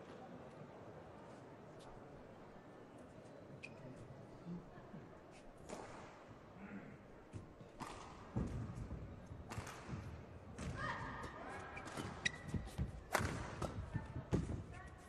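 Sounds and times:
shoes squeaking on court: 3.6 - 4.1, 11.6 - 13.8.

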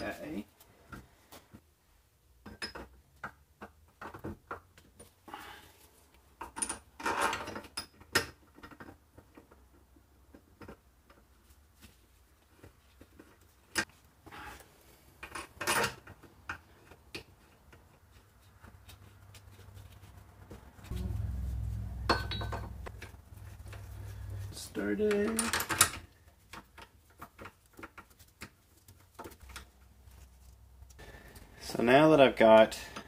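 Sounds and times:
metal parts clinking and knocking: 22.1 - 27.8.

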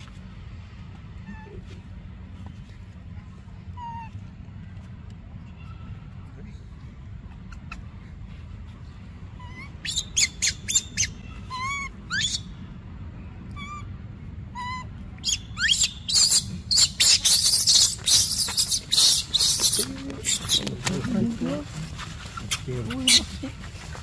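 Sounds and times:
high chirping calls: 9.4 - 12.6, 14.6 - 20.9
footsteps on dry leaves: 17.5 - 24.0.

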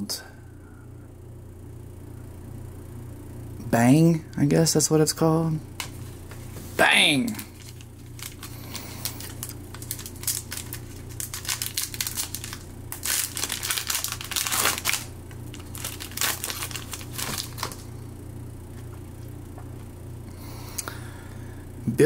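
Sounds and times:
wrapper crinkling and tearing: 7.2 - 17.9.

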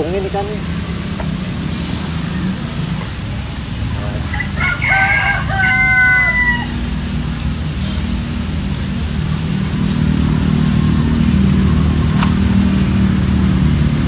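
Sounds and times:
low mechanical hum: 0.0 - 14.0
rooster crowing: 4.2 - 7.2.

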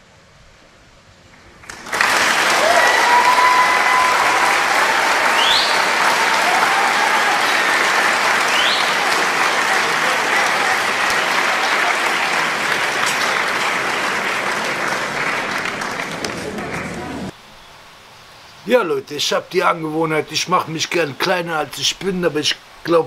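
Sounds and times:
audience applauding: 1.4 - 17.4
rising whistles from crowd: 1.8 - 12.3.

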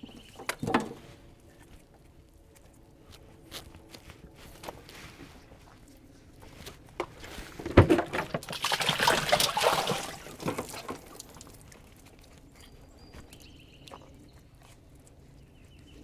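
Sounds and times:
water splashing and pouring: 7.8 - 11.9.

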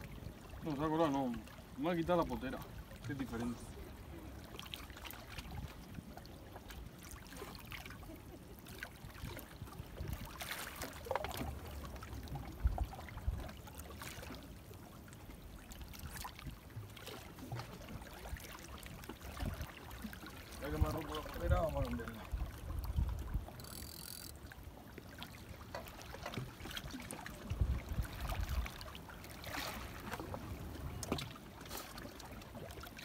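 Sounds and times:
small waves splashing on rocks: 8.7 - 14.5, 16.1 - 33.0.

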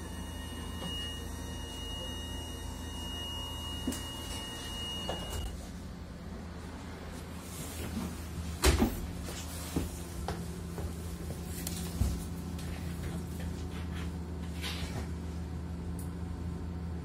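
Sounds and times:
door warning tone: 0.0 - 5.6.

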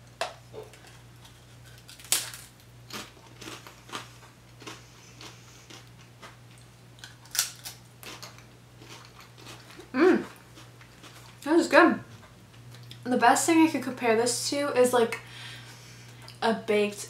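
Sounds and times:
potato chip crunching: 0.6 - 11.5.

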